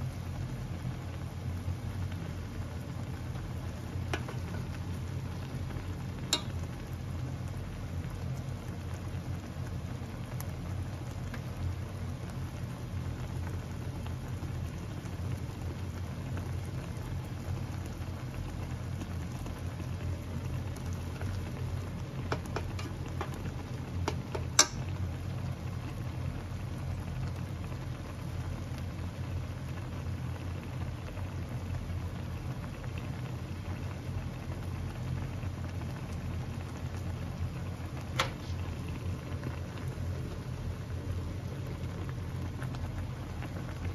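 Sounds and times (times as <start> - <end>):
broth bubbling in a pot: 0.0 - 43.9
chopsticks knocking against pot: 24.1 - 24.8.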